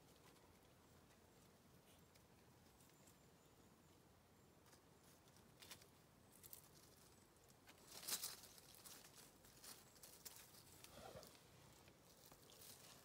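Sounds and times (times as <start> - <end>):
dry leaves crackling: 5.0 - 13.0.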